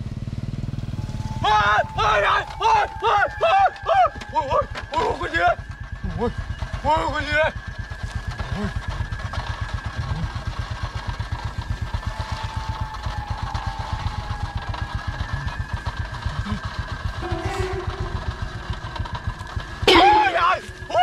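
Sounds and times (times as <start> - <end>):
motorcycle engine idling: 0.0 - 21.0
high thin whine: 0.5 - 5.3, 17.2 - 21.0.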